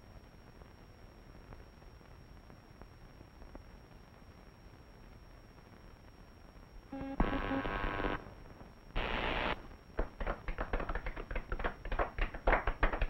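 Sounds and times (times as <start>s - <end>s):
crowd clapping: 10.0s - 13.0s.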